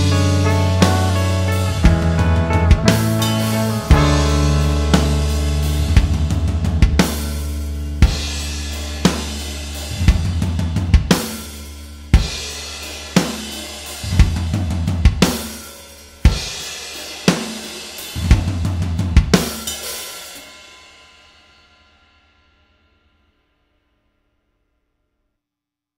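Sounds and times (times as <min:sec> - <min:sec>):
rock song drums and bass: 0:00.0 - 0:20.3.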